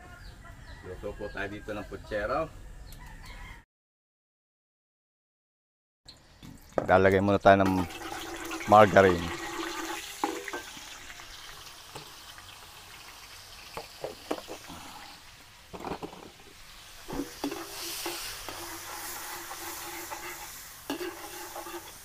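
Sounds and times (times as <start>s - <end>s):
metal ladle scraping pan: 7.7s - 11.0s, 15.7s - 22.0s
fat sizzling in a wok: 7.7s - 22.0s.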